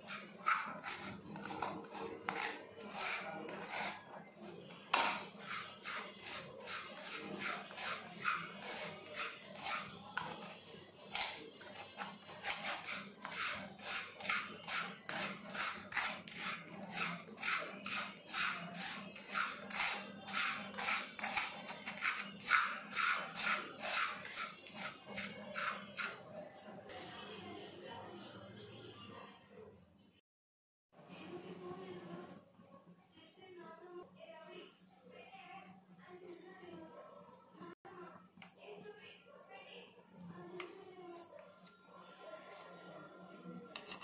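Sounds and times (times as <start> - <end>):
wooden spatula scraping a pan: 0.0 - 26.3, 43.7 - 44.0.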